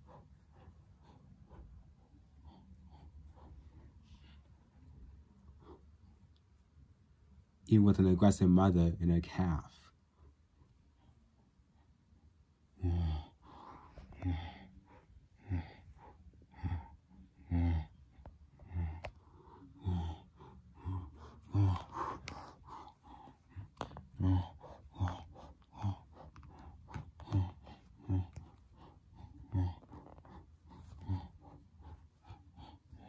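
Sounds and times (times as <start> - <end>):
person grunting and huffing: 12.8 - 13.4, 15.4 - 15.9, 16.5 - 18.0, 18.6 - 32.0.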